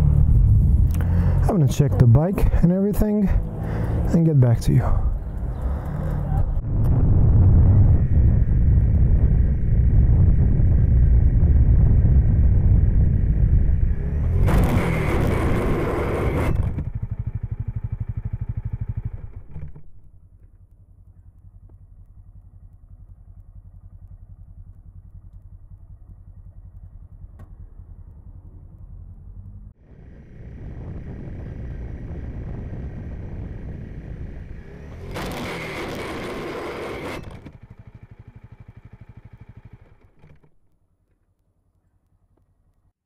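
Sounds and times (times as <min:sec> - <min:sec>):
faint low rumble: 0:00.0 - 0:14.6, 0:16.6 - 0:35.1
road noise: 0:00.0 - 0:40.6
motorcycle engine: 0:00.0 - 0:42.7
motorcycle scraping on asphalt: 0:13.9 - 0:17.1, 0:34.5 - 0:40.5.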